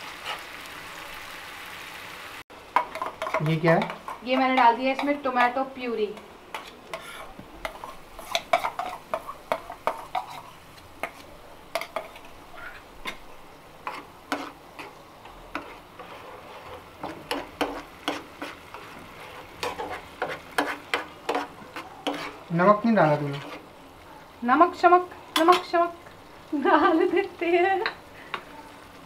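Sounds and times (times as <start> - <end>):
oil sizzling: 0.0 - 29.0
spoon scraping frying pan: 0.2 - 0.5, 2.7 - 23.7, 25.2 - 26.0.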